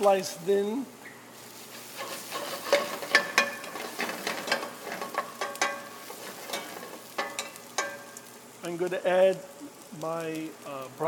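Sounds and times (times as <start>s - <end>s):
garlic sizzling in oil: 0.0s - 11.0s
wooden spoon scraping a pan: 1.5s - 8.0s.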